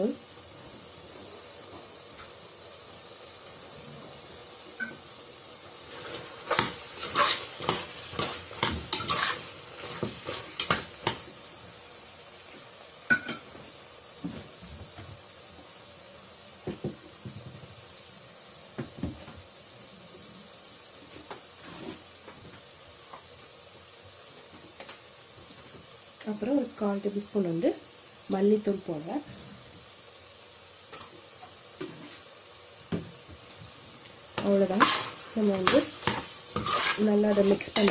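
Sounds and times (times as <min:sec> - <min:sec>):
low sizzle of frying: 0:00.0 - 0:37.9
spatula scraping a pot: 0:05.9 - 0:11.2, 0:34.4 - 0:37.9.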